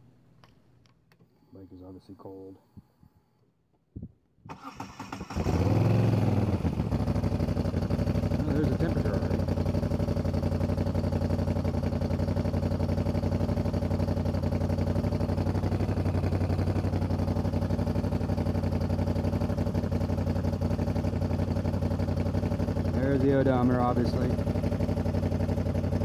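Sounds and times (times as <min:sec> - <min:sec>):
motorcycle engine idling: 0:05.6 - 0:26.0.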